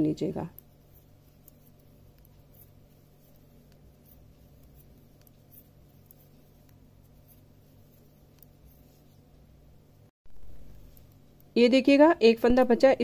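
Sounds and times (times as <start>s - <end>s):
steady low hum: 0.0s - 13.0s
knitting needles clicking: 0.5s - 9.1s.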